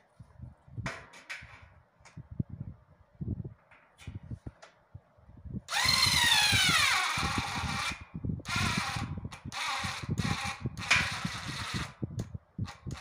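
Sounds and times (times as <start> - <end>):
electric screwdriver whining: 5.7 - 11.9.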